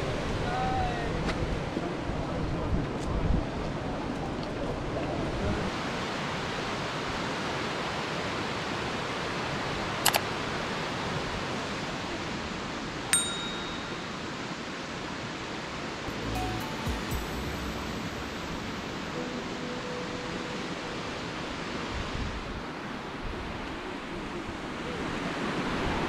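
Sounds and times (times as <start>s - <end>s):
bright bell ding: 13.2s - 14.3s, 16.1s - 20.9s.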